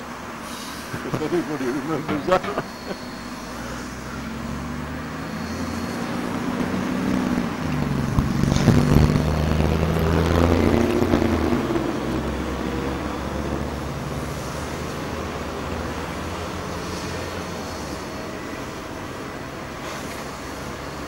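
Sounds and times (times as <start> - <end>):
steam locomotive rumble: 0.0 - 5.1, 5.7 - 21.0
steam hissing: 0.4 - 3.9, 14.2 - 19.0.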